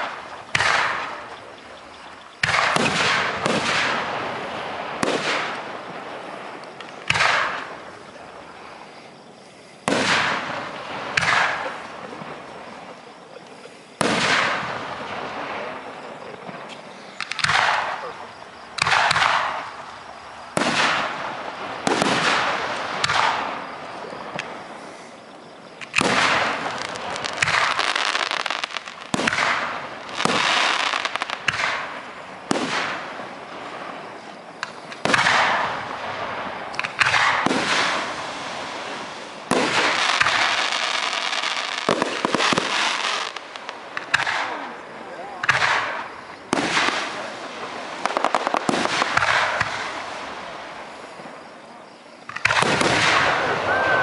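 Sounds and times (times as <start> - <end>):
fireworks bursting overhead: 0.0 - 54.0.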